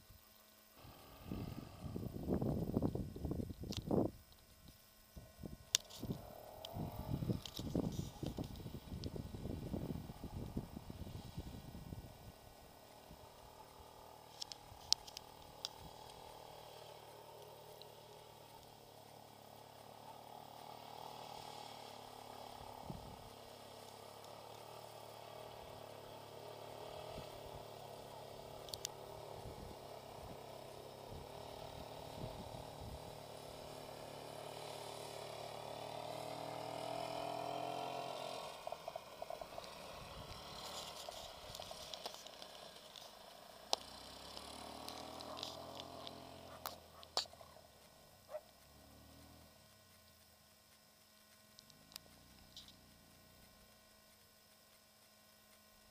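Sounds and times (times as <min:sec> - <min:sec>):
engine running: 0:00.0 - 0:55.9
sharp clicks: 0:13.3 - 0:18.8, 0:28.6 - 0:29.1.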